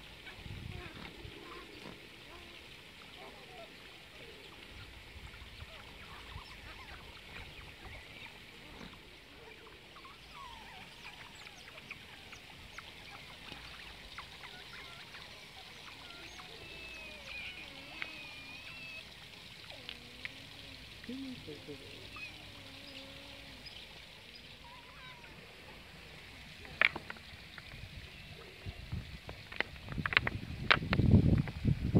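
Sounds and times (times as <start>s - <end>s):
otters whistling calls: 0.0s - 28.6s
otters squeaking and chirping: 10.0s - 25.4s.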